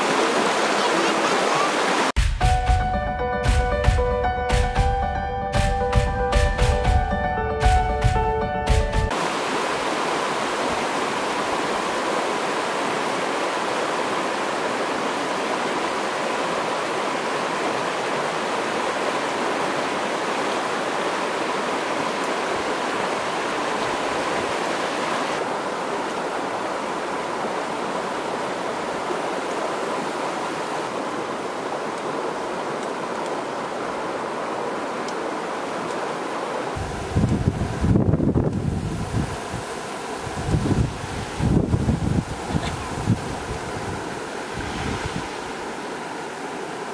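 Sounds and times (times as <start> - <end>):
stream water rushing: 0.0 - 2.2, 5.5 - 46.9
music: 2.2 - 9.1.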